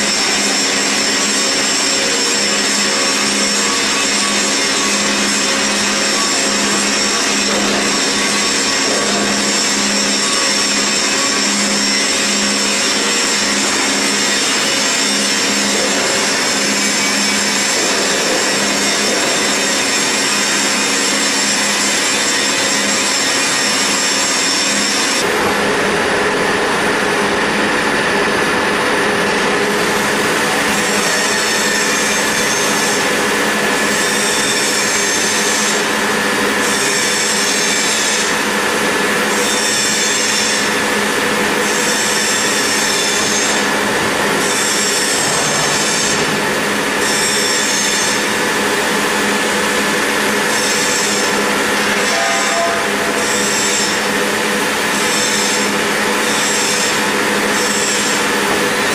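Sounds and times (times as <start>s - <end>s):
lathe tool grinding hiss: 29.8s - 58.9s.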